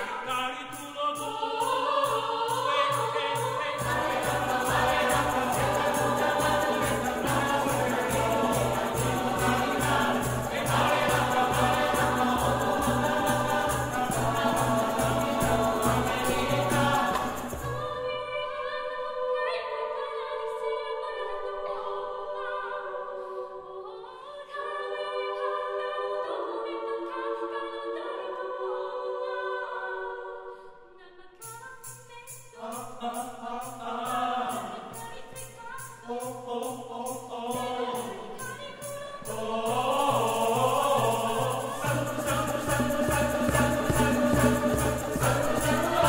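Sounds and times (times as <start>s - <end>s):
choir singing a cappella: 0.0s - 46.0s
hand-clapped beat: 3.8s - 17.8s, 39.3s - 46.0s.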